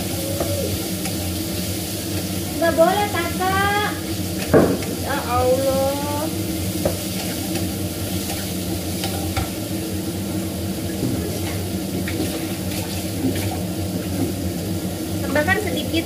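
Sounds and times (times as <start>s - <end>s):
food sizzling in a frying pan: 0.0s - 16.0s
steady low hum: 0.0s - 16.0s
wooden spatula knocking on pan: 4.5s - 5.2s.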